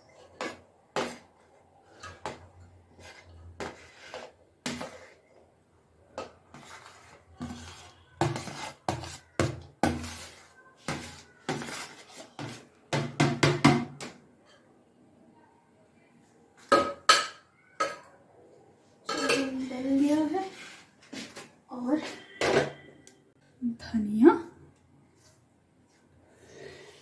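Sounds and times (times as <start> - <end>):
metal spoon scraping metal pot: 6.5 - 12.6.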